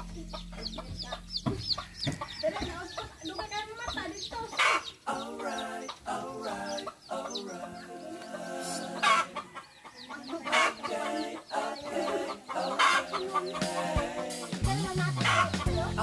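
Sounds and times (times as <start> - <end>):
background music: 0.0 - 2.7, 5.1 - 9.4, 11.0 - 16.0
chickens clucking: 0.0 - 16.0.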